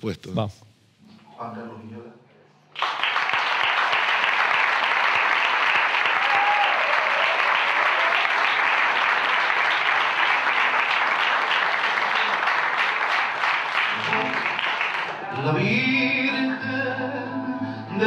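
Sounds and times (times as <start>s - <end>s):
audience applauding: 2.7s - 15.9s.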